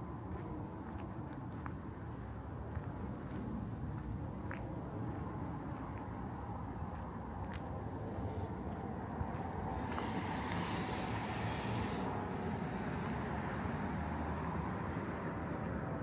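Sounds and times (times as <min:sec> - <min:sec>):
traffic rumble: 0:00.0 - 0:16.0
vehicle passing close by: 0:04.8 - 0:16.0.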